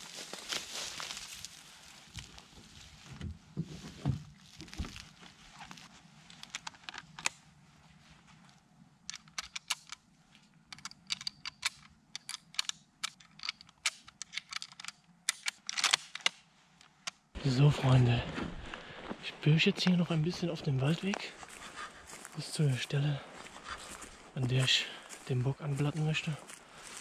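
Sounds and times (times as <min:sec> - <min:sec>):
rustling: 0:00.0 - 0:08.7.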